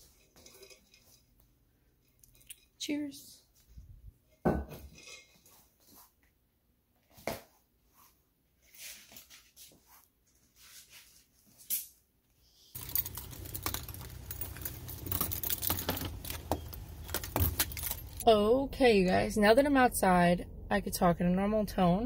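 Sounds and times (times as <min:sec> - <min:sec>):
keys clicking and rattling: 0:12.8 - 0:18.3.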